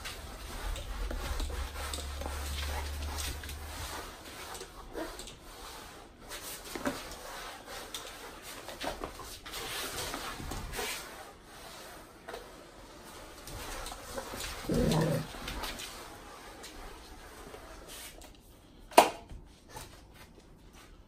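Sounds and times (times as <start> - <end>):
mop scrubbing concrete floor: 0.0 - 21.0.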